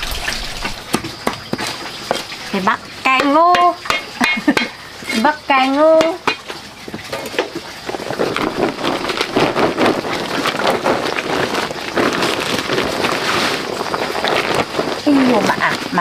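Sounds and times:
plastic sack crinkling: 0:06.6 - 0:16.0.

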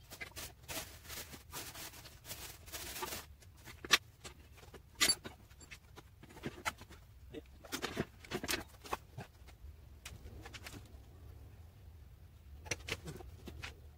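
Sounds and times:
plastic wrap rustling and crinkling: 0:00.0 - 0:07.0.

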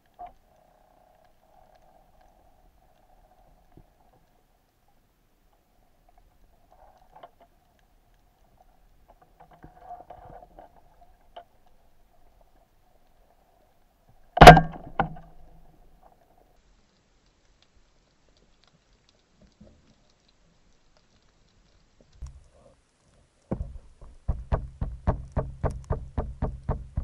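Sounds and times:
faint crackling: 0:00.0 - 0:27.0
sharp knocks: 0:14.4 - 0:15.2, 0:23.5 - 0:27.0.

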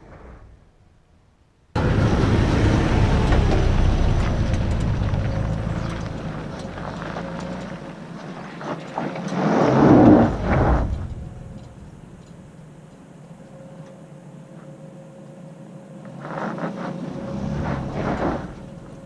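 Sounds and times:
suv engine rumble: 0:01.8 - 0:13.2, 0:16.1 - 0:19.0.

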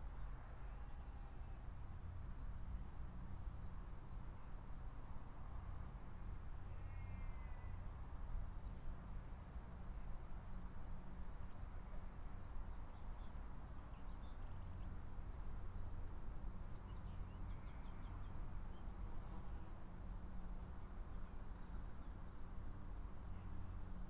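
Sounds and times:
faint outdoor hum: 0:00.0 - 0:24.0.

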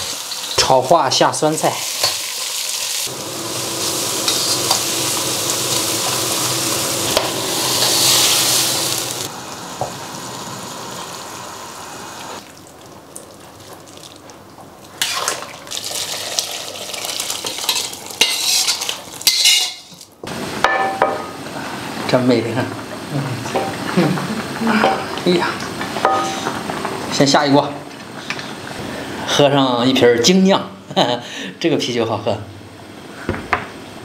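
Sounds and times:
greens frying in oil: 0:00.0 - 0:29.4
spatula scraping a wok: 0:03.8 - 0:05.0, 0:17.7 - 0:19.9.

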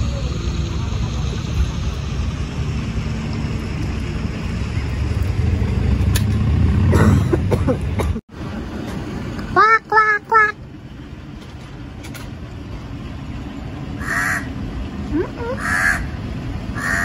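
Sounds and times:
low steady rumble: 0:00.0 - 0:17.0
crow cawing: 0:14.0 - 0:14.5, 0:15.6 - 0:16.1, 0:16.8 - 0:17.0.

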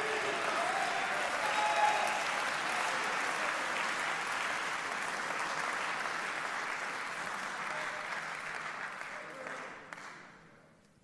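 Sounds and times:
audience applauding: 0:00.0 - 0:10.2.

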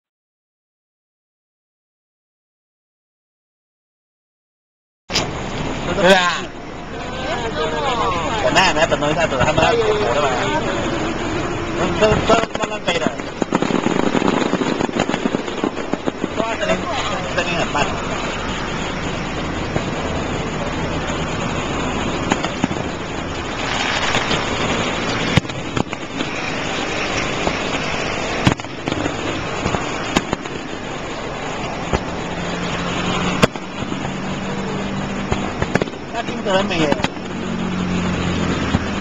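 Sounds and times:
steady background din: 0:05.1 - 0:39.0
low hum: 0:05.2 - 0:36.2
firework shells bursting: 0:10.9 - 0:37.6.

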